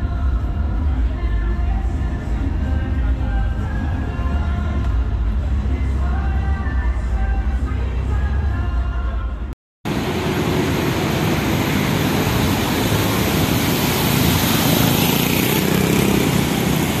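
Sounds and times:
music: 0:00.0 - 0:09.5
loud outdoor background rush: 0:00.0 - 0:17.0.

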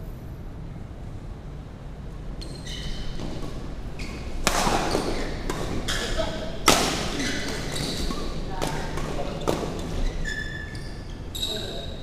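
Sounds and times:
rackets hitting shuttlecock: 0:02.4 - 0:10.1
shoes squeaking on court: 0:02.4 - 0:12.0.

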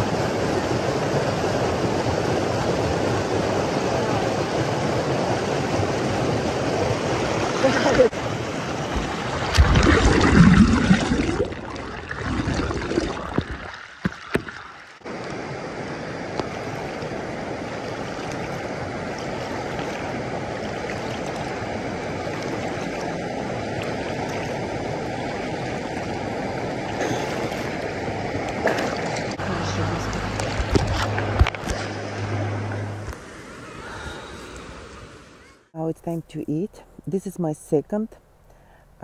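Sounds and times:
water rushing over rocks: 0:00.0 - 0:33.2.

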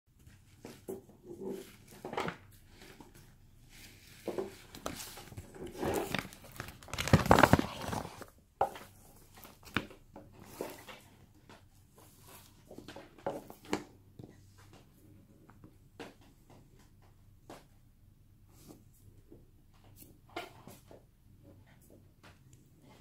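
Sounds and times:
paper gift bag rustling: 0:04.6 - 0:08.3.

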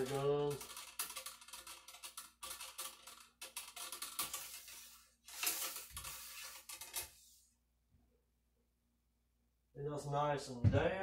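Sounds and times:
cleaning rod scraping in barrel: 0:04.0 - 0:07.4.

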